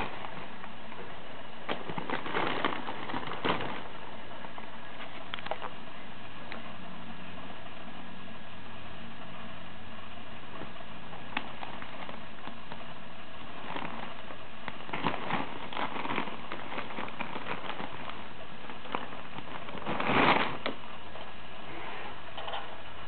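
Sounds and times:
plastic bag crinkling: 0:00.0 - 0:05.8, 0:10.5 - 0:20.9.

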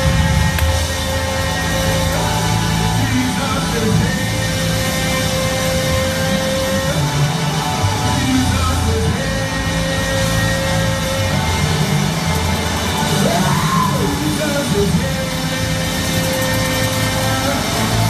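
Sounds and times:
man singing and shouting: 0:00.0 - 0:07.4, 0:08.0 - 0:12.1, 0:13.1 - 0:18.0
bass line: 0:00.0 - 0:18.0
keyboard chords: 0:00.0 - 0:18.0.

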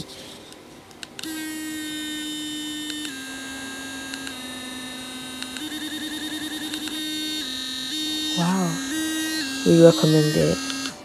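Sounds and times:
electric toothbrush buzzing: 0:01.2 - 0:11.0.

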